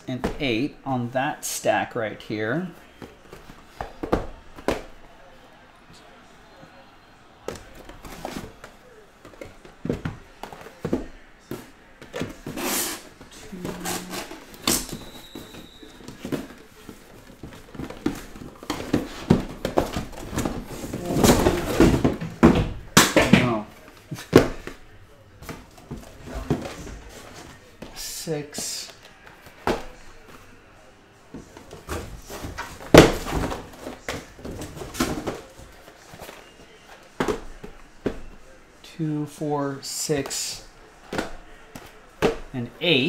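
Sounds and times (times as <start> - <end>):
boxes knocking on table: 17.3 - 23.5, 31.8 - 36.4.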